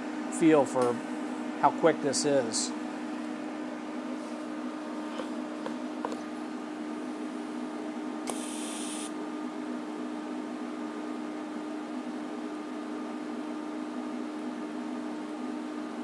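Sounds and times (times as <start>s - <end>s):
high-frequency start hiss: 8.2s - 9.1s
welder click: 8.2s - 9.1s
welding arc hissing: 8.3s - 9.1s.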